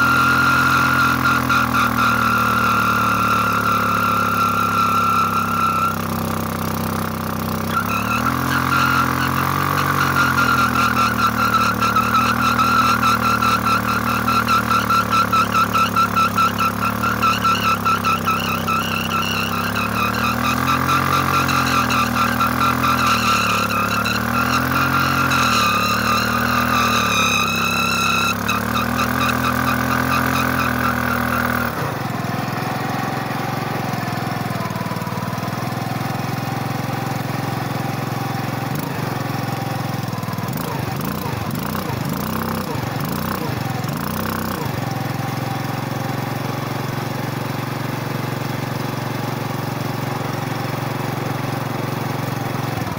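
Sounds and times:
tyre squealing against ground: 0:00.0 - 0:31.9
motorcycle engine revving: 0:00.0 - 0:52.9.

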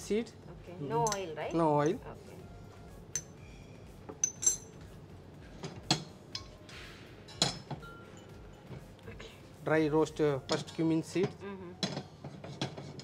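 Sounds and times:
metal utensils clinking: 0:01.0 - 0:02.0, 0:03.1 - 0:03.4, 0:04.1 - 0:04.9, 0:05.6 - 0:06.7, 0:07.3 - 0:09.0, 0:10.5 - 0:13.0.

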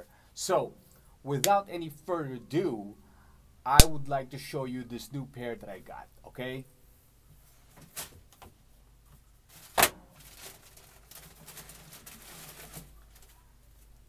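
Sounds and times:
sharp knock: 0:03.8 - 0:04.1
tissue paper rustling: 0:09.5 - 0:14.0.

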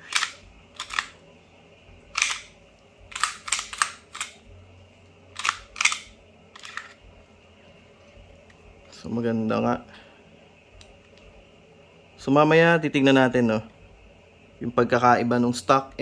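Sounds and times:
pistol slide clacking: 0:00.0 - 0:01.2, 0:02.1 - 0:02.5, 0:03.1 - 0:04.4, 0:05.3 - 0:07.0.

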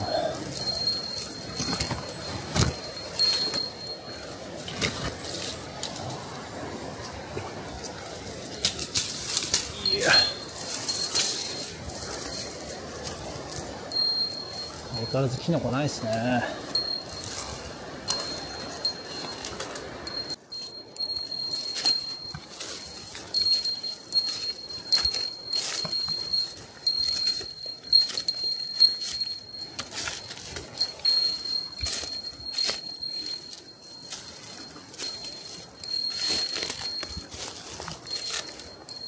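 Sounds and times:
small bell jingling: 0:00.0 - 0:05.5, 0:09.2 - 0:39.0
footsteps crunching on forest floor: 0:20.6 - 0:39.0.

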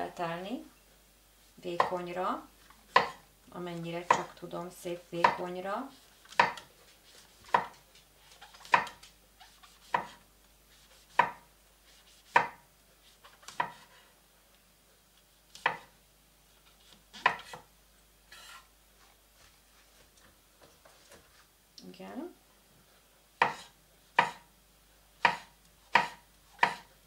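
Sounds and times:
knife slicing mushrooms: 0:02.9 - 0:03.2, 0:06.3 - 0:12.6, 0:13.4 - 0:14.0, 0:17.2 - 0:17.7, 0:23.4 - 0:24.5, 0:25.2 - 0:26.9.

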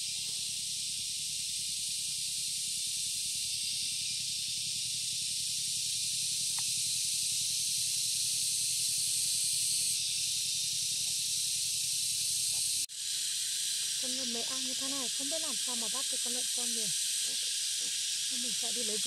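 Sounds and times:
high-pitched hiss: 0:00.0 - 0:19.0
faint ticks: 0:06.5 - 0:06.8.

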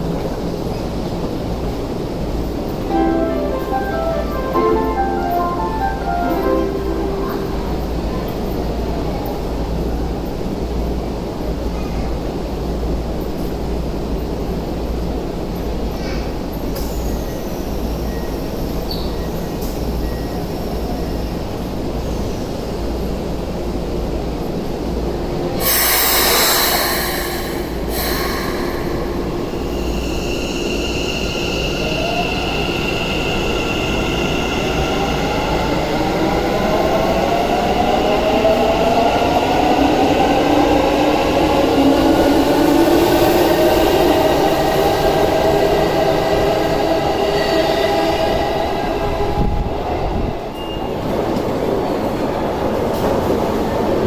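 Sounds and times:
air hiss of train doors: 0:25.6 - 0:30.8.

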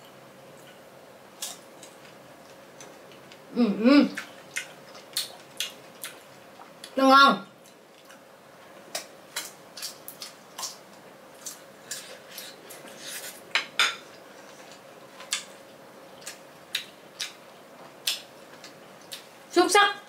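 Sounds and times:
crunching and chewing mango: 0:04.2 - 0:07.0.

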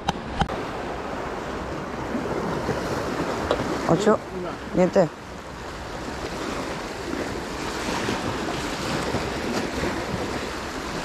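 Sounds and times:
sea waves washing in: 0:00.0 - 0:11.0
wind noise on microphone: 0:05.4 - 0:11.0.

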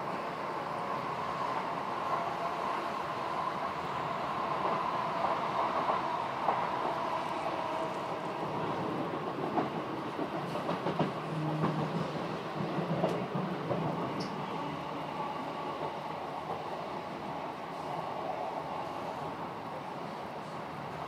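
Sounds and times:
train rumble inside carriage: 0:00.0 - 0:21.0
train wheels clicking over track: 0:08.7 - 0:14.5.

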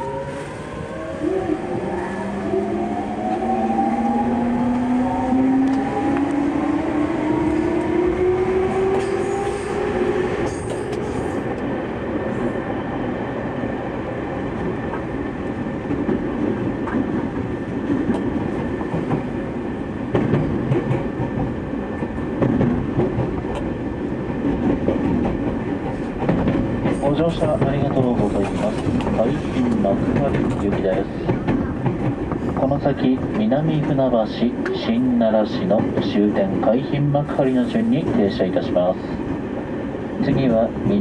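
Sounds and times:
rail joint clicks: 0:05.6 - 0:06.4, 0:08.8 - 0:11.7, 0:14.6 - 0:19.4, 0:20.0 - 0:39.6
wheels on rail running noise: 0:14.6 - 0:34.0.

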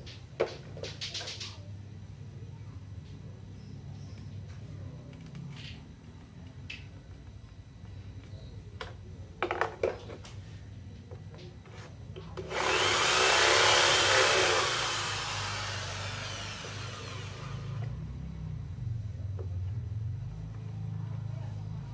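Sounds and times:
electric drill boring into wood: 0:12.4 - 0:17.9.

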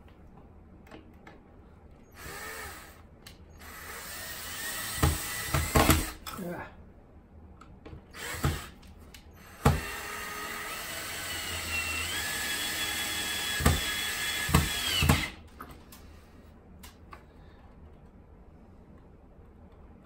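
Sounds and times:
cordless drill motor whine: 0:02.1 - 0:03.0, 0:03.6 - 0:06.1, 0:08.2 - 0:08.7, 0:09.4 - 0:15.4.

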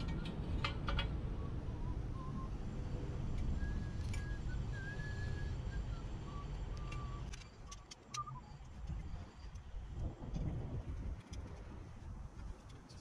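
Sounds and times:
low background rumble: 0:00.0 - 0:13.0
thin whistled notes: 0:01.4 - 0:02.6, 0:03.4 - 0:09.4.

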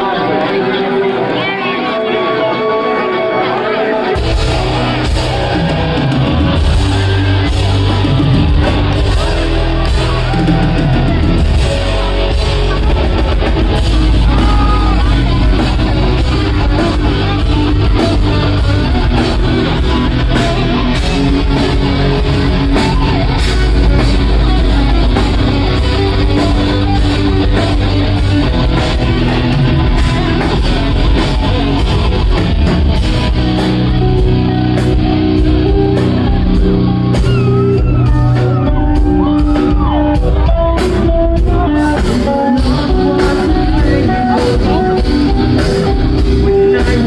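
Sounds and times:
electric guitars: 0:00.0 - 0:47.0
drum kit: 0:04.1 - 0:47.0
person singing: 0:33.6 - 0:47.0.

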